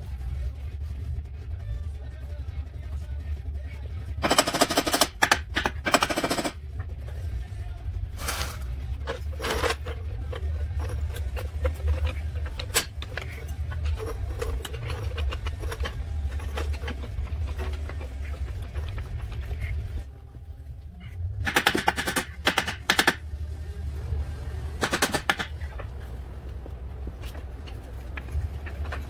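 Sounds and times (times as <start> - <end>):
steady low hum: 0.0 - 29.0
rapid metal hammering: 4.2 - 6.6, 9.0 - 20.1, 21.4 - 23.4, 24.8 - 25.9.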